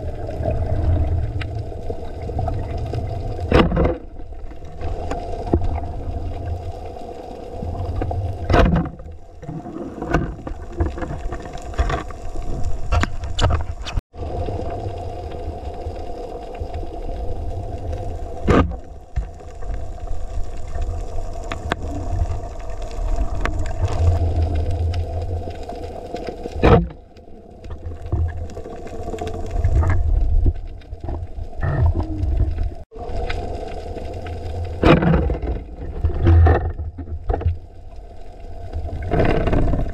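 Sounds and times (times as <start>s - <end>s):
underwater low hum: 0.0s - 39.9s
underwater clicks and knocks: 3.4s - 4.2s, 8.0s - 14.0s, 34.8s - 37.6s.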